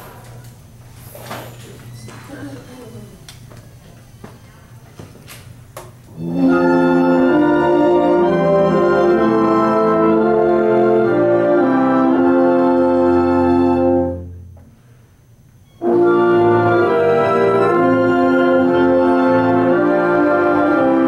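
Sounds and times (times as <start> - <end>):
instrumental ensemble playing chords: 6.1 - 14.5, 15.8 - 21.0.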